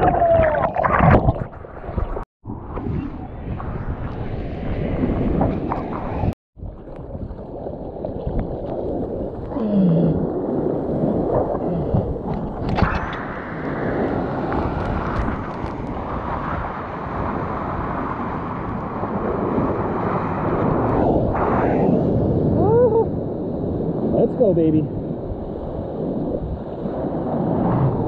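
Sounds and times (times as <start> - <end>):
water rushing: 0.0 - 2.2
wind buffeting microphone: 0.0 - 28.0.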